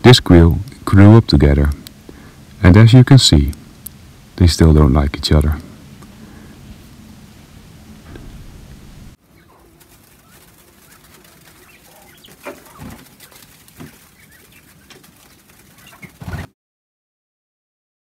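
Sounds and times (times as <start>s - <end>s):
birds scuffling in wood shavings: 8.0s - 16.5s
quail chirping: 9.2s - 16.5s.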